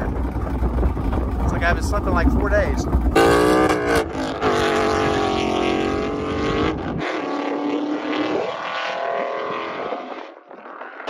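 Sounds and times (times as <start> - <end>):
car exhaust drive-by: 0.0 - 8.5.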